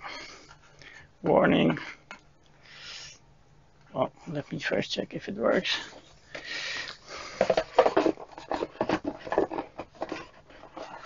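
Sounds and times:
cardboard box knocks and scrapes: 7.4 - 11.0.

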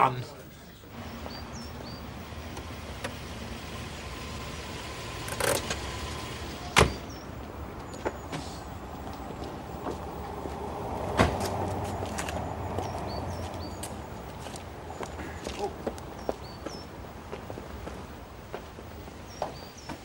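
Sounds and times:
birds chirping faintly: 0.0 - 20.0
car engine running: 0.9 - 15.2.

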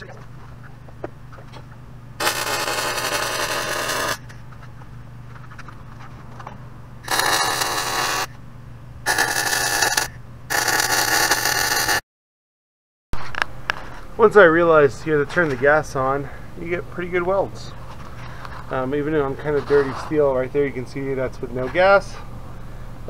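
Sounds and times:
steady low hum: 0.0 - 12.0, 13.2 - 23.0
welding arc crackling: 2.2 - 4.2, 7.0 - 8.3, 9.1 - 12.0.

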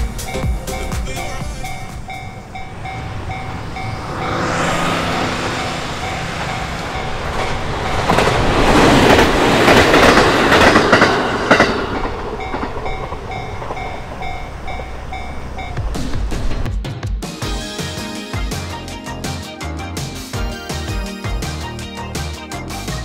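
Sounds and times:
electric train rumbling past: 0.0 - 16.7
level crossing bell ringing: 0.1 - 3.9
wheels clacking over rail joints: 6.0 - 16.6.

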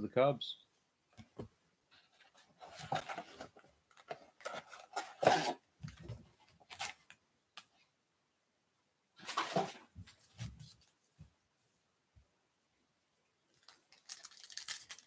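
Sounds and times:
foil packs rustling and crinkling: 13.6 - 15.0.

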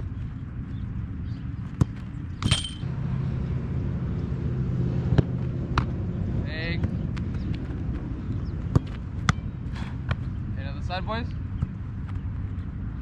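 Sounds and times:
motor vehicle engine rumble: 0.0 - 13.0
football being struck: 1.8 - 2.9.

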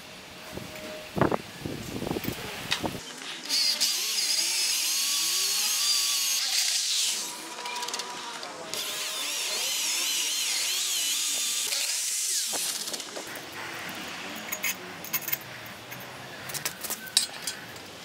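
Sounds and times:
electric drill boring metal: 3.4 - 13.6.

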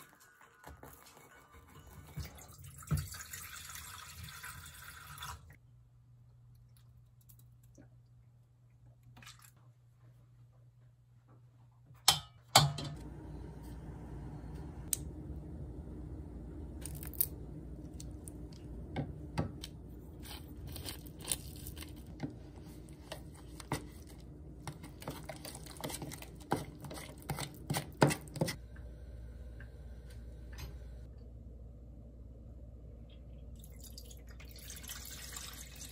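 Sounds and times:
low hum: 12.6 - 25.0, 28.6 - 34.4.

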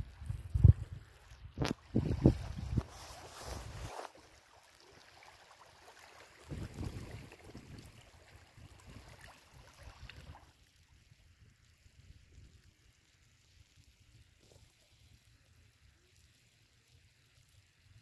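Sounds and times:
wind gusting on microphone: 0.2 - 3.0, 6.5 - 7.9.

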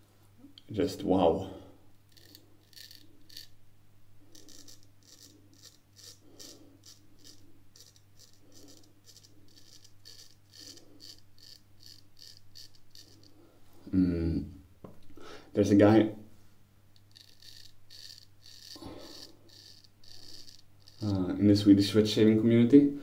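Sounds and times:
straight razor scraping whiskers: 2.1 - 3.6, 4.3 - 13.4, 17.0 - 21.6.

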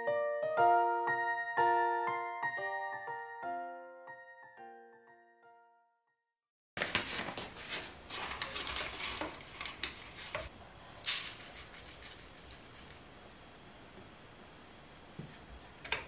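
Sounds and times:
piano music: 0.0 - 6.0.

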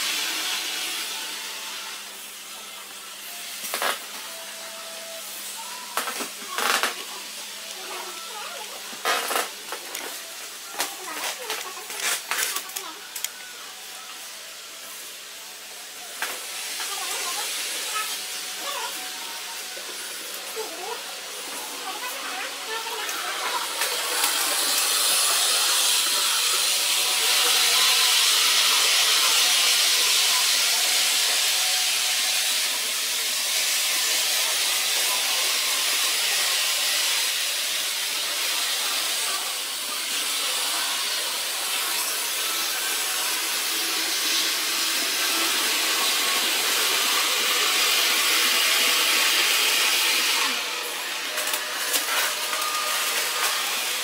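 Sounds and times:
model train wheels on rail: 15.4 - 54.0.

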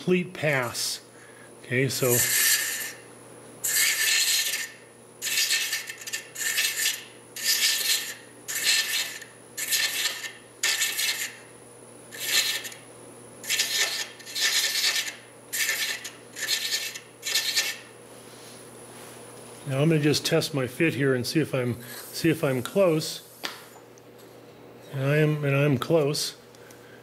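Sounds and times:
thread chaser rasping on spinning wood: 2.0 - 3.0, 3.6 - 11.4, 13.4 - 17.8.

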